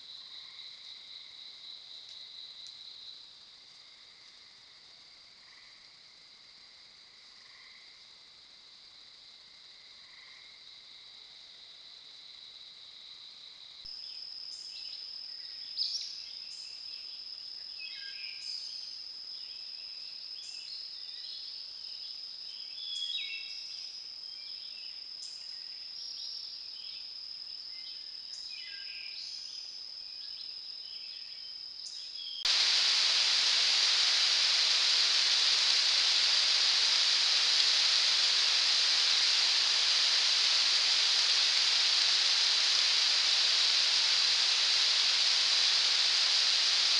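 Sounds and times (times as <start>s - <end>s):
loud steady hiss: 0.0s - 3.6s, 32.4s - 46.9s
steady high-pitched whine: 32.5s - 46.9s.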